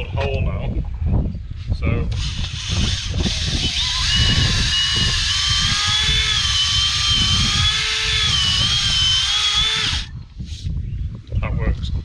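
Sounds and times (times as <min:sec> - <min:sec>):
cordless drill boring through wood: 0:02.1 - 0:10.1.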